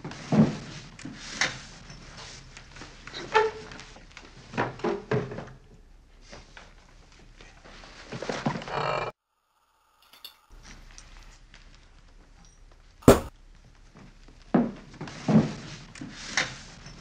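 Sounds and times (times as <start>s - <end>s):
ceramic ashtray knocking on table: 13.0s - 13.3s.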